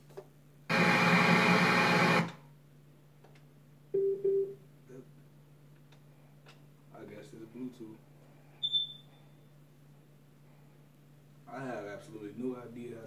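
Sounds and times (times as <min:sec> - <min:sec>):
short low beeps: 0:04.0 - 0:04.6, 0:08.6 - 0:09.3.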